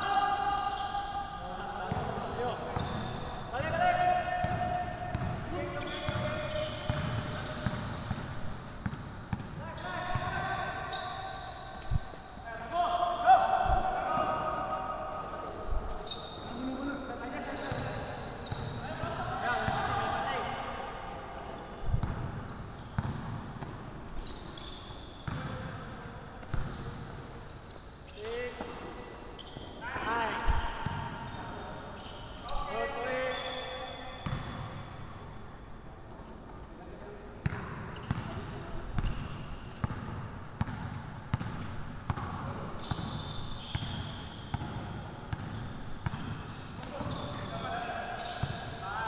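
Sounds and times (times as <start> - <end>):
sneakers squeaking on court floor: 0.0 - 3.8, 4.4 - 20.5, 21.3 - 36.6, 37.4 - 49.0
basketball bouncing: 4.4 - 5.4, 23.0 - 23.7, 39.0 - 46.4.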